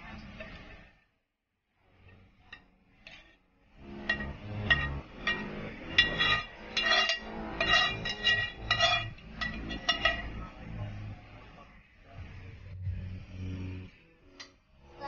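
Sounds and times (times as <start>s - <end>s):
metal spoon clinking on frying pan: 4.0s - 10.4s.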